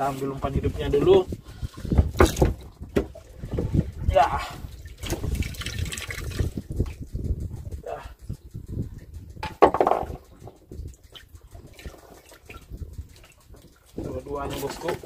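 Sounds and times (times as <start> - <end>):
water splashing and dripping: 1.6 - 15.0
knocks on wooden boat: 2.0 - 3.8, 9.4 - 10.2.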